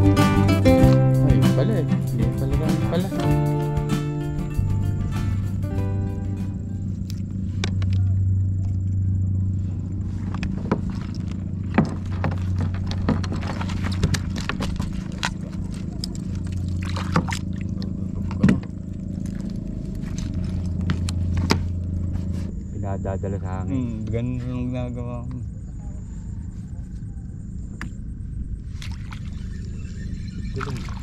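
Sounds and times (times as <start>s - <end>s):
steady low hum: 0.0s - 31.0s
net knocking and clacking: 11.7s - 17.5s.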